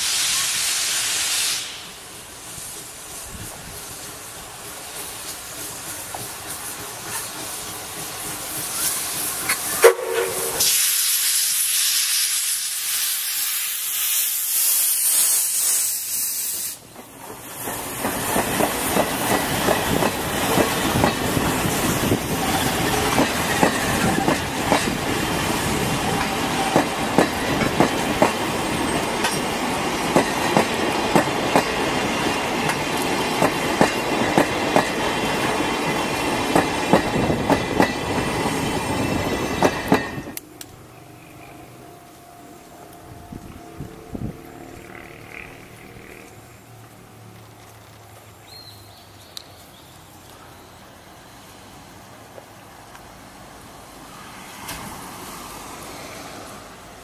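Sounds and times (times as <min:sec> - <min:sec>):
locomotive steam hiss: 0:00.0 - 0:41.2
wheels clacking over rail joints: 0:16.8 - 0:41.5.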